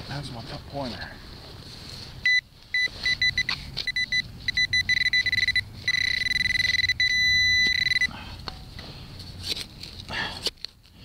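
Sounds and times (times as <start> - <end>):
metal detector beeping: 2.2 - 8.1.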